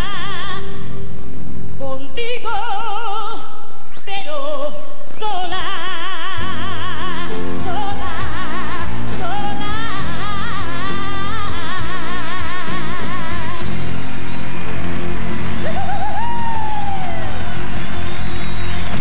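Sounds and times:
woman singing pop ballad: 0.0 - 1.1, 1.8 - 14.0.

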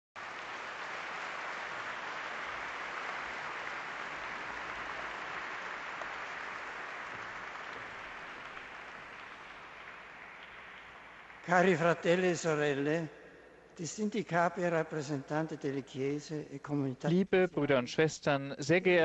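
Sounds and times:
audience applauding: 0.2 - 12.8.

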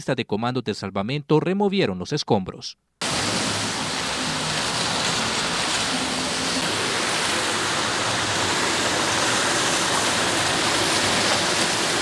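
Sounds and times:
floodwater rushing: 3.0 - 12.0.

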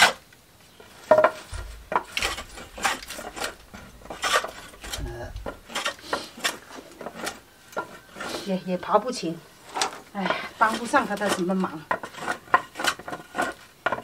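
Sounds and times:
hand plane scraping wood: 1.1 - 8.5, 9.6 - 14.0
dull low knocks: 1.3 - 5.8.

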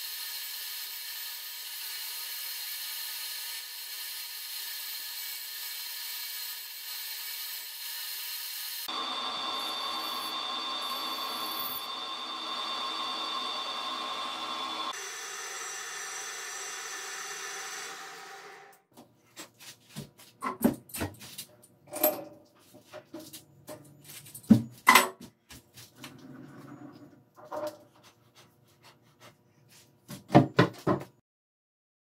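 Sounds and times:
metal lathe winding down: 8.8 - 18.8.

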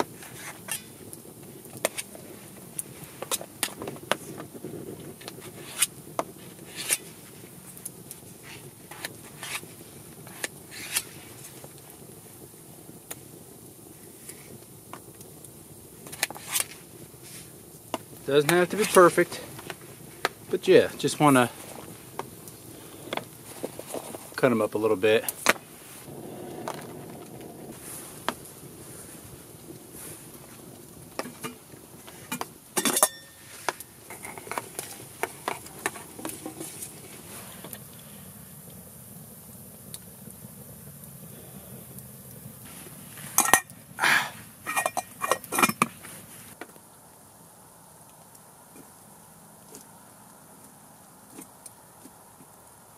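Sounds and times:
metal clinking on metal: 32.8 - 33.4, 44.7 - 45.9.

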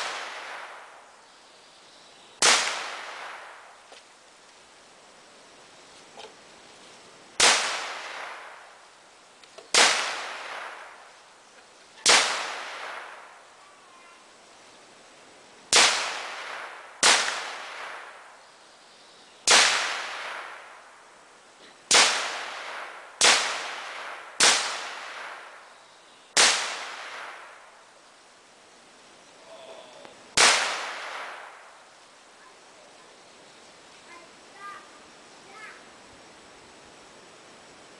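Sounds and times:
gunshots with long echo: 0.0 - 1.0, 2.4 - 3.7, 7.4 - 8.7, 9.7 - 11.0, 12.0 - 13.4, 15.7 - 18.3, 19.5 - 20.8, 21.9 - 25.6, 26.4 - 27.8, 30.4 - 31.8.

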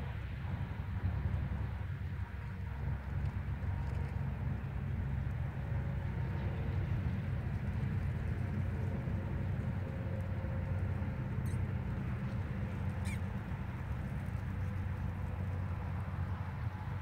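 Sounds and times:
wind buffeting microphone: 0.0 - 17.0
brief high squeaks: 13.0 - 13.3.

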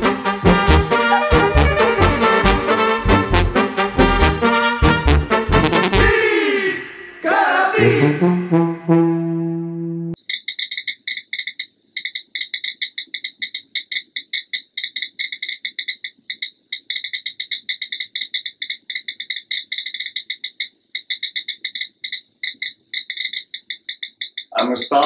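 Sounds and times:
crickets chirping: 10.2 - 25.0.

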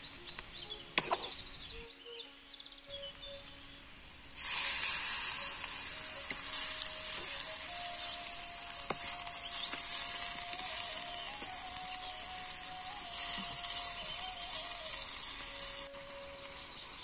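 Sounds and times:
curry sizzling in a pot: 2.9 - 17.0
wooden spoon stirring: 4.4 - 17.0.

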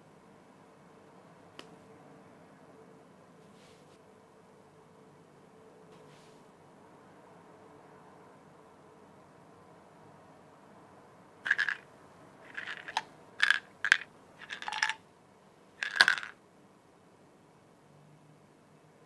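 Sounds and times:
pills rattling in a bottle: 11.5 - 11.9, 12.5 - 15.0, 15.8 - 16.4
pill bottle clicks: 12.5 - 15.0, 15.8 - 16.3.

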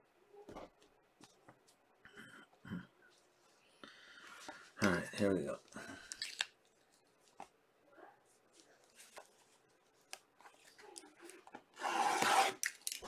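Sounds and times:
faint clicks and taps: 0.4 - 1.8.

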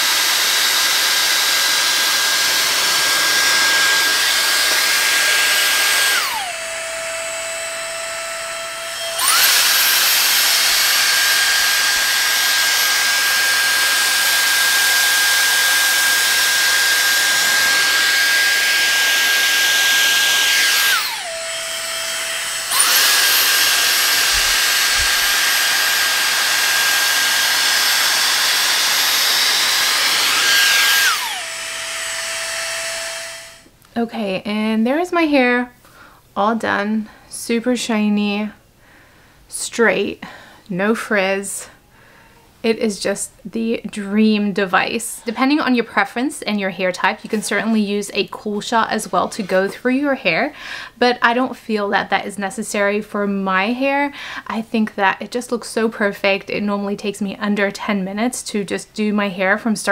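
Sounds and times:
hair straightener blowing air: 0.0 - 33.7.

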